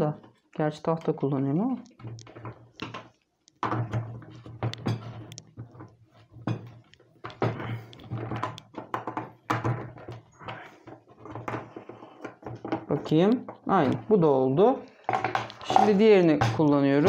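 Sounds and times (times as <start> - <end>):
skateboard parts clicking and knocking: 6.7 - 14.1, 15.0 - 16.8.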